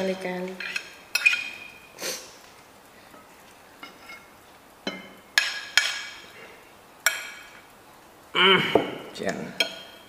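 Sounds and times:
metal spoons clinking on ceramic plates: 0.6s - 1.8s, 9.6s - 10.0s.

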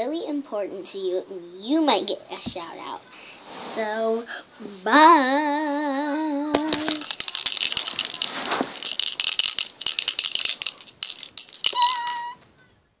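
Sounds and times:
plastic toy wand rattling: 6.5s - 12.4s.

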